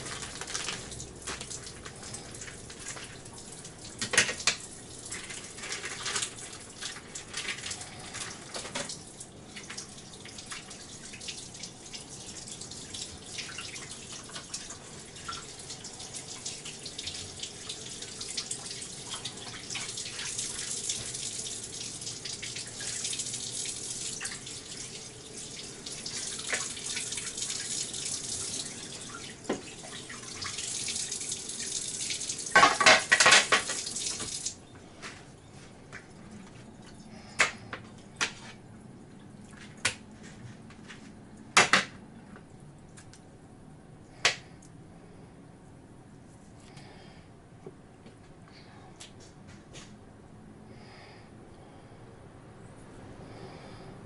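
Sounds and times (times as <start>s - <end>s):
tap water running into sink: 0.0s - 34.6s.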